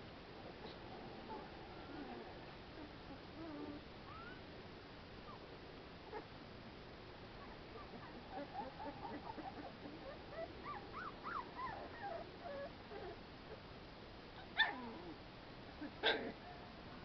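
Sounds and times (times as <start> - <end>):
puppies whimpering and squeaking: 1.9 - 4.5, 7.4 - 13.2.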